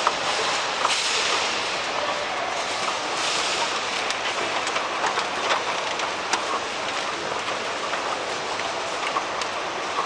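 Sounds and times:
moving walkway rumble: 0:00.0 - 0:10.0.

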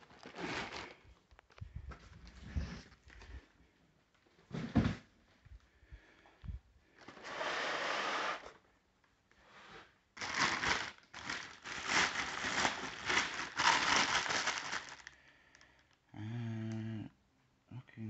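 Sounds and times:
plastic bag crinkling: 0:00.0 - 0:01.7, 0:10.2 - 0:15.8.

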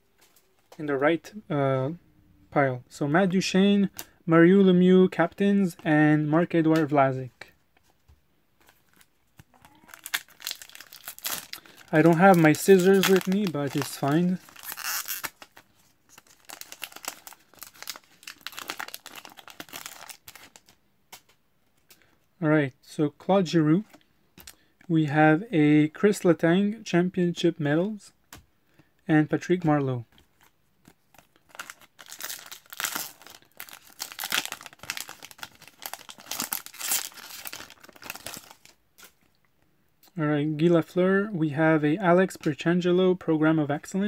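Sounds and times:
foil wrapper crinkling and tearing: 0:08.8 - 0:20.8, 0:30.8 - 0:39.2.

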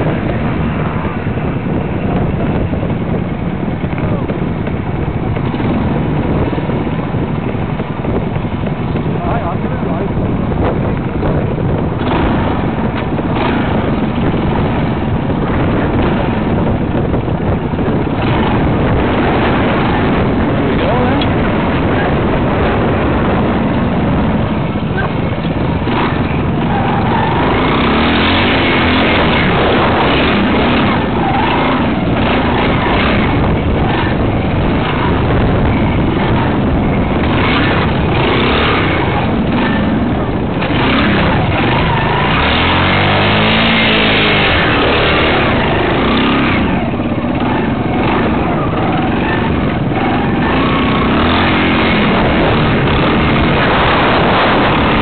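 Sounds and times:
motorcycle engine running: 0:00.0 - 0:55.0
wind buffeting microphone: 0:00.0 - 0:55.0.

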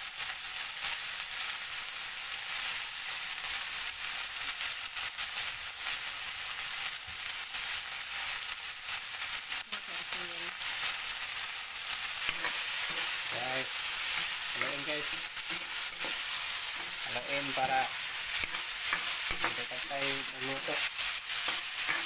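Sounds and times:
meat sizzling in hot oil: 0:00.0 - 0:22.0
metal spatula scraping wok: 0:12.2 - 0:22.0.

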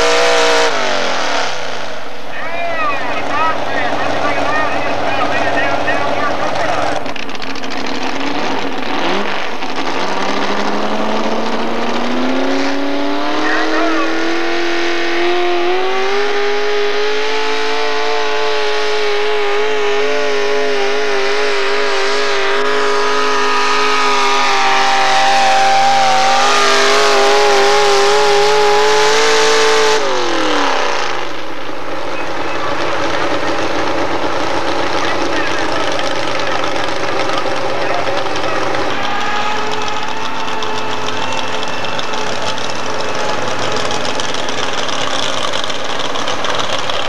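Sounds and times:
truck engine revving: 0:00.0 - 0:47.0.

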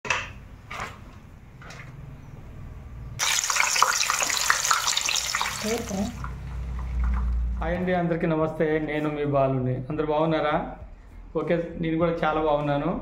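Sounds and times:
water boiling hard in a pan: 0:03.2 - 0:07.4.

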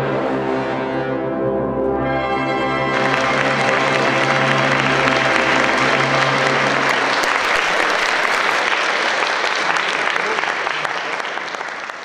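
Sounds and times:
audience applause: 0:02.8 - 0:12.0.

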